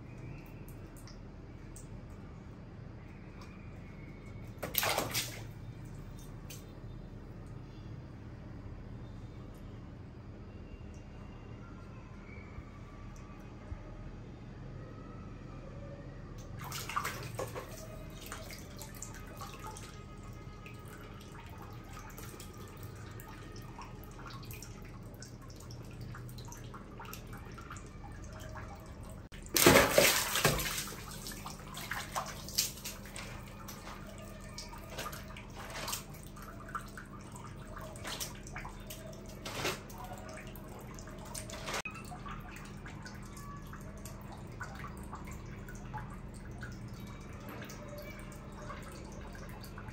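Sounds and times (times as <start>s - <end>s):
water dripping: 0.0s - 2.3s, 16.4s - 49.9s
faint steady hum: 0.0s - 49.9s
water splashing: 4.5s - 6.6s, 16.6s - 46.8s.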